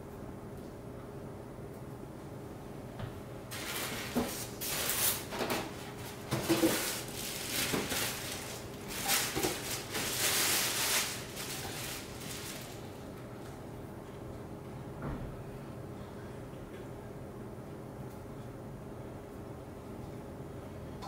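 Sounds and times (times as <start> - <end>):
cardboard and plastic rustling: 3.5 - 13.1
plastic bag crinkling: 3.5 - 13.1.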